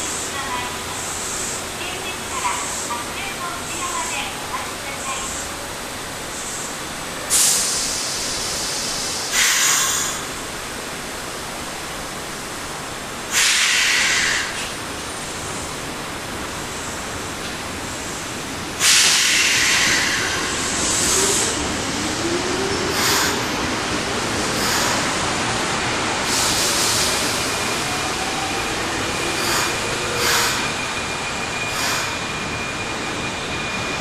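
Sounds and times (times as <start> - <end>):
subway train whine: 0.0 - 34.0
air brakes hissing: 7.3 - 10.4, 13.3 - 14.7, 18.8 - 21.6, 22.9 - 23.5, 26.2 - 27.4, 29.3 - 30.8, 31.7 - 32.5.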